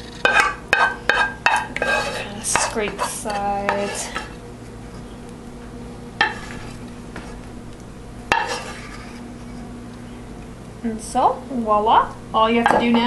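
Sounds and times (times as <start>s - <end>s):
wooden spoon scraping saucepan: 0.0s - 5.1s, 6.2s - 7.5s, 8.3s - 9.7s
steady low hum: 0.0s - 13.0s.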